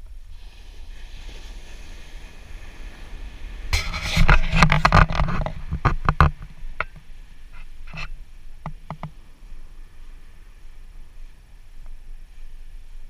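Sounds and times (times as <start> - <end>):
wind and surf rumble: 0.0 - 13.0
knocks and rustling on microphone: 3.7 - 9.2.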